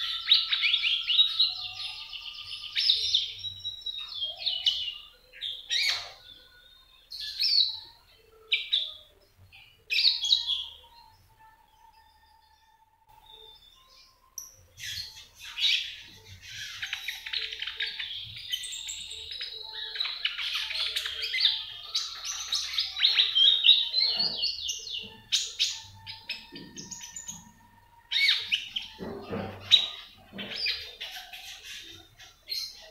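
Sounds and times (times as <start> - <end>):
parakeet chirping and trilling: 13.4 - 32.9.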